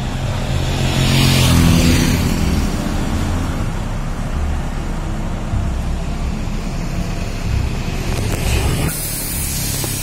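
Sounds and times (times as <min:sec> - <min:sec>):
diesel engine idling: 0:02.2 - 0:10.0
hiss: 0:08.2 - 0:10.0.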